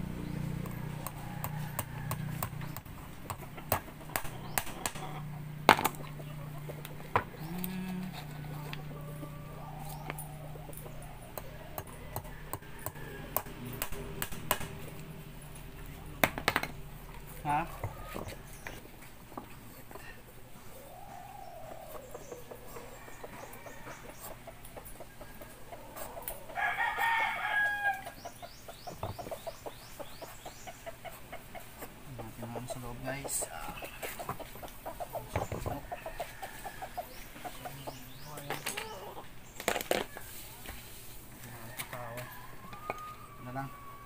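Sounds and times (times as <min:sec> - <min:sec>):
rooster crowing: 0:00.8 - 0:02.7, 0:07.8 - 0:13.8, 0:20.7 - 0:24.5, 0:25.2 - 0:28.2, 0:35.8 - 0:37.2, 0:41.4 - 0:44.0.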